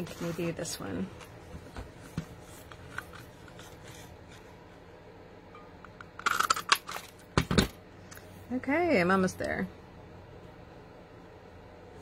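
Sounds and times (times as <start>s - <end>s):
paper rustling and sliding: 0.0s - 4.5s.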